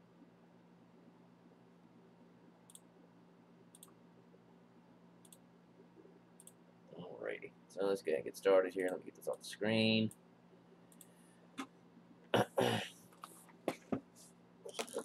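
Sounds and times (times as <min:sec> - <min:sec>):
low steady hum: 0:00.0 - 0:15.0
faint sharp clicks: 0:05.2 - 0:05.4, 0:10.9 - 0:11.7.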